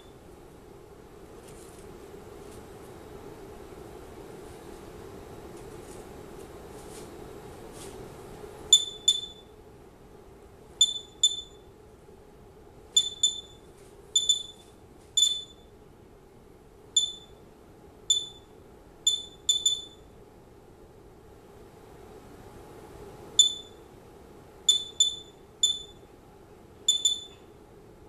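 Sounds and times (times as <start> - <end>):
geiger counter beeps: 8.7 - 9.5, 10.8 - 11.7, 13.0 - 15.7, 17.0 - 17.4, 18.1 - 18.5, 19.1 - 20.1, 23.4 - 23.8, 24.7 - 26.0, 26.9 - 27.4.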